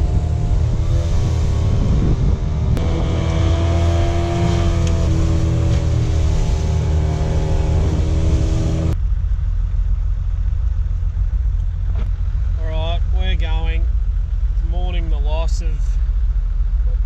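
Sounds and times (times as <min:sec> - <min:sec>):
outboard motor rumbling: 0:00.0 - 0:17.0.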